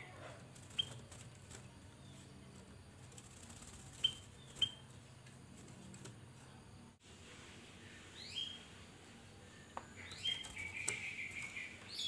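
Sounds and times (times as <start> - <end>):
bird chirping: 0.0 - 2.8, 3.8 - 5.2, 7.8 - 12.0.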